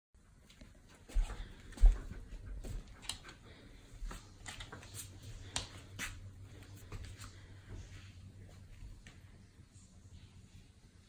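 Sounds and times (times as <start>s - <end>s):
faint low hum: 0.2s - 11.0s
dog paws tapping on wooden floor: 0.4s - 7.9s.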